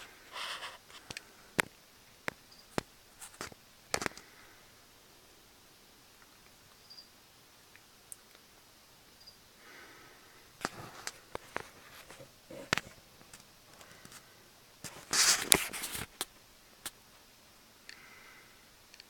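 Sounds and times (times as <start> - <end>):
scraping rustle against glass: 0.0 - 1.1, 14.0 - 16.3.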